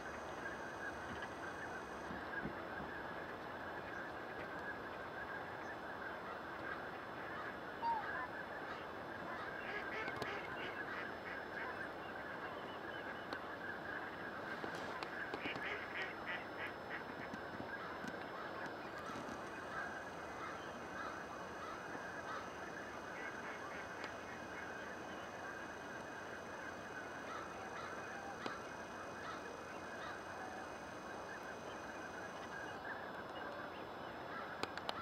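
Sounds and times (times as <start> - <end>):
flock of waterfowl calling: 0.0 - 35.0.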